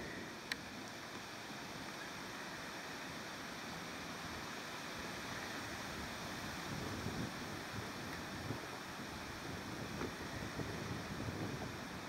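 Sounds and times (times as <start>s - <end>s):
wind noise on microphone: 5.0s - 12.0s.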